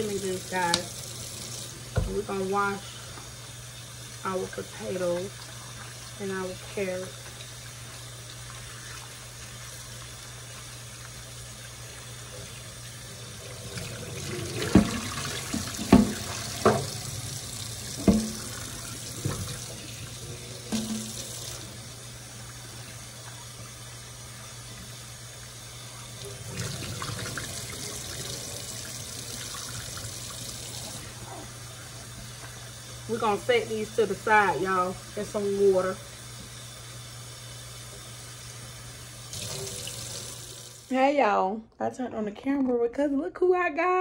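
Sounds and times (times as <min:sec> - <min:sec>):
tap water running into sink: 0:00.0 - 0:40.9
vegetables being washed by hand: 0:00.0 - 0:41.0
vegetables knocking in sink: 0:14.6 - 0:17.0, 0:18.0 - 0:18.6.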